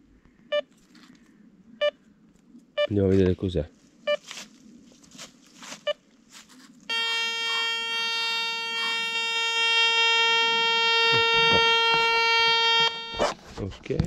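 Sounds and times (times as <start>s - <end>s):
metal detector beep: 6.9s - 13.4s
buzzy metal detector tone: 6.9s - 13.6s.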